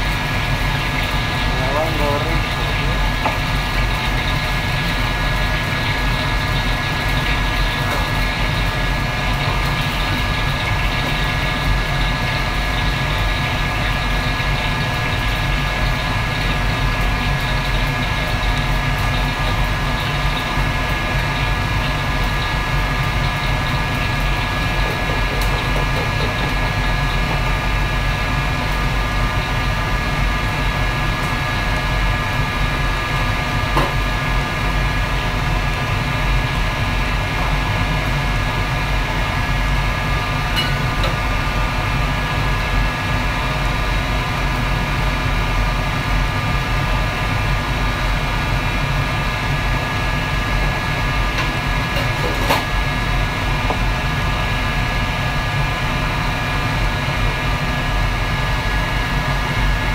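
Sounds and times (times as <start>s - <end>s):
wok range and extractor roar: 0.0s - 59.9s.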